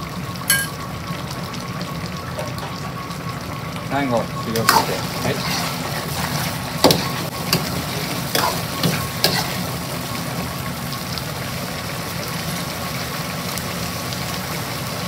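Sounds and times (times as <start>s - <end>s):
stove burner rushing: 4.4s - 10.4s
metal ladle scraping a wok: 4.6s - 9.8s.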